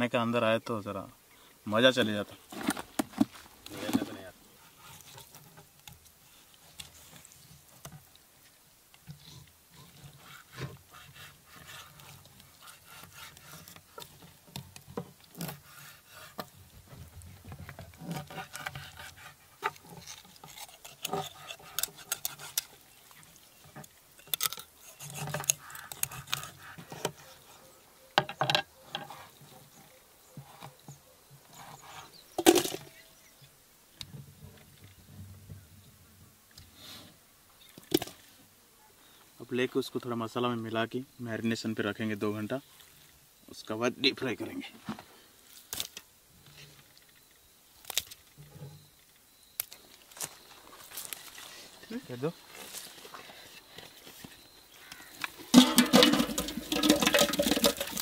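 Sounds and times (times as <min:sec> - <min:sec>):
knife scraping and slicing fish: 0:18.1 - 0:22.8, 0:24.4 - 0:27.3.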